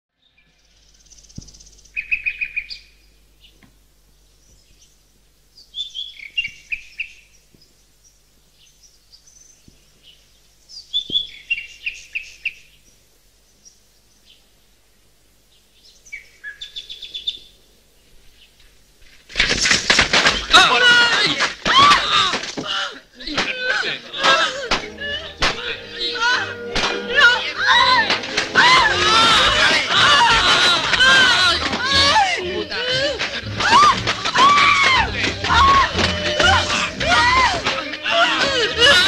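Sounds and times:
songbird singing: 0.1s - 18.8s.

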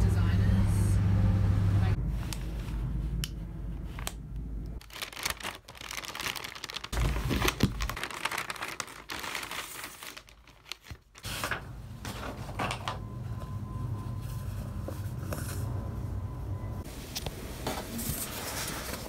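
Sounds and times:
shipping bags crinkling: 4.8s - 11.6s.

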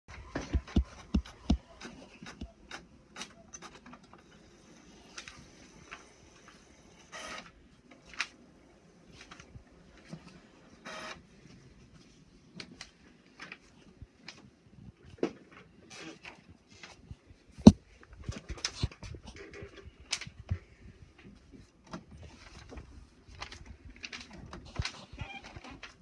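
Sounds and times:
printer whirring: 0.1s - 11.4s.

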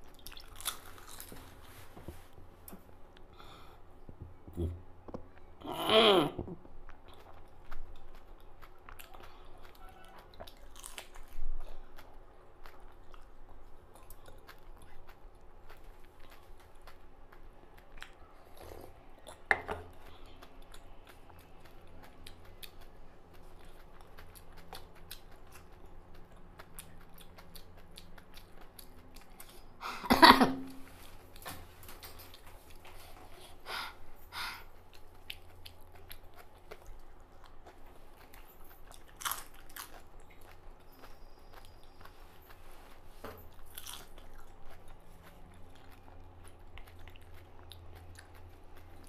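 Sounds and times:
crisp food crunching: 0.0s - 1.6s, 6.9s - 18.2s, 34.9s - 42.2s
chewing and mouth noises: 0.0s - 1.8s, 6.6s - 29.8s, 34.6s - 49.0s.

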